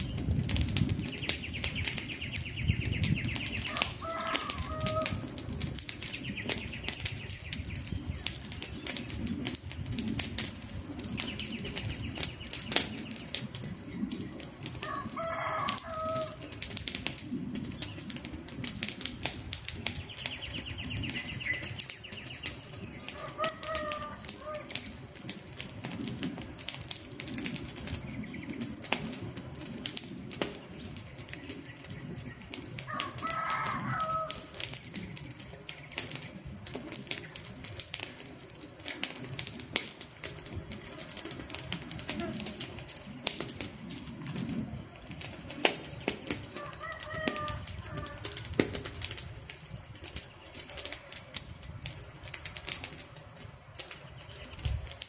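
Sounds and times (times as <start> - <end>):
campfire crackling and popping: 0.0 - 55.0
bird calling: 1.0 - 5.3, 19.9 - 25.0.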